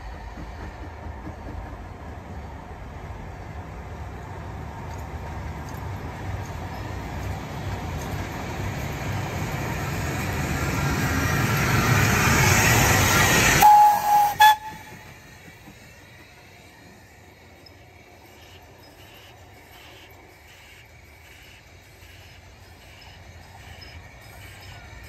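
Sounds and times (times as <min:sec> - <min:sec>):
steam locomotive rumble and clatter: 0:00.0 - 0:25.0
steam whistle blast: 0:13.6 - 0:15.1.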